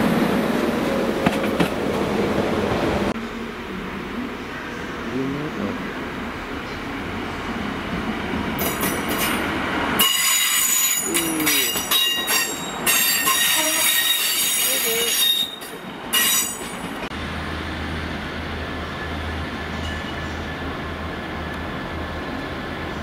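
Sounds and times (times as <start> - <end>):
train wheels squealing: 10.0 - 16.8.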